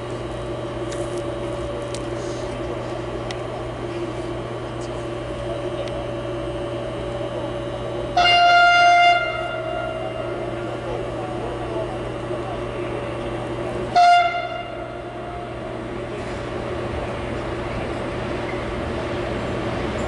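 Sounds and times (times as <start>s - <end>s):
steady hum: 0.0s - 20.0s
train horn blast: 8.1s - 10.8s, 13.8s - 15.6s.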